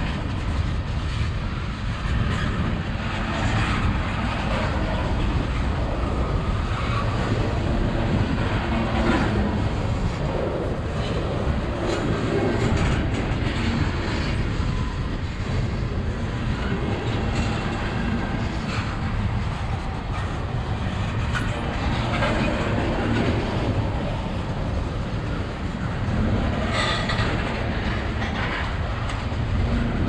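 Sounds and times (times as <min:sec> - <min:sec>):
steel wheels rumbling on rail: 0:00.0 - 0:30.0
wheels clacking over rail joints: 0:16.0 - 0:30.0.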